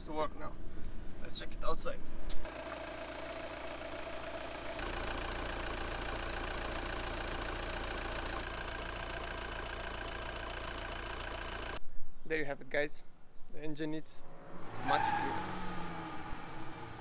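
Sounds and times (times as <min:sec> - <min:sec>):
diesel engine idling: 0:02.5 - 0:11.8.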